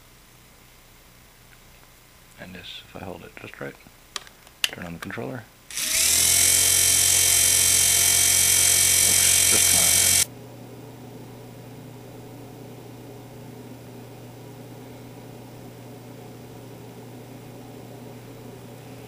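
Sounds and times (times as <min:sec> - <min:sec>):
low hum with faint hiss: 0:00.0 - 0:19.0
small electric motor whine: 0:05.7 - 0:10.3.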